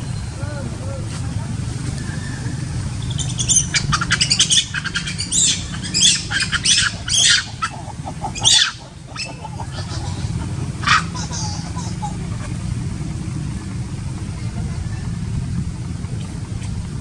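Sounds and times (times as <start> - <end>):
macaque squeaking: 2.0 - 12.6
macaque shrill screeches: 2.1 - 7.8, 8.4 - 11.7.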